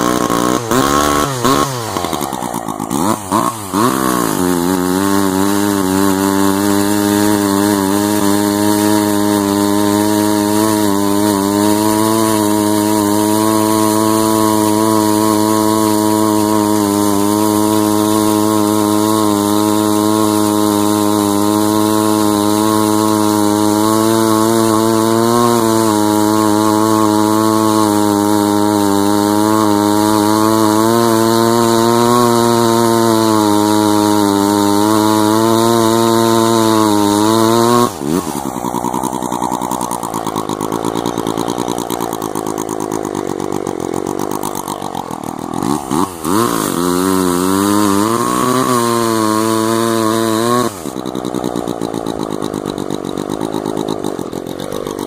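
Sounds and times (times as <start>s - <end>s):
chainsaw cutting through log: 0.0s - 55.0s.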